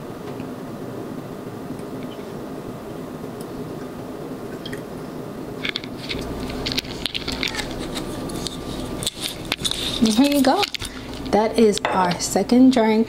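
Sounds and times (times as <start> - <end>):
steady background hiss: 0.0 - 13.0
liquid crackling on ice: 5.8 - 11.4.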